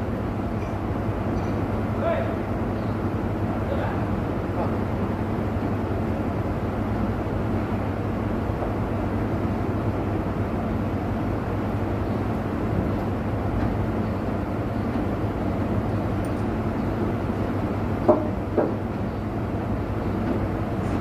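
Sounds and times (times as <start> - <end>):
sharp knocks: 18.1 - 18.8.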